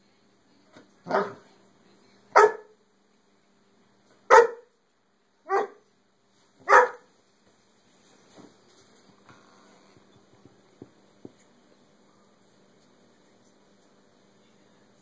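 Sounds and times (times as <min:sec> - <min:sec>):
dog barking: 0:01.1 - 0:01.4, 0:02.3 - 0:02.8, 0:04.3 - 0:04.7, 0:05.5 - 0:05.8, 0:06.6 - 0:07.1
dog yipping: 0:06.7 - 0:07.0.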